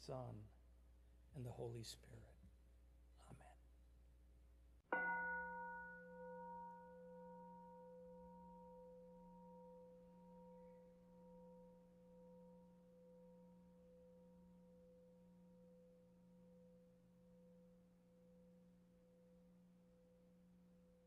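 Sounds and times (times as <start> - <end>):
singing bowl ringing: 4.9 - 21.0.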